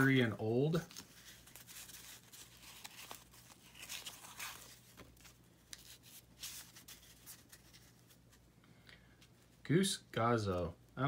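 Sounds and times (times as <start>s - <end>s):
cards shuffling and rustling: 0.0s - 8.4s.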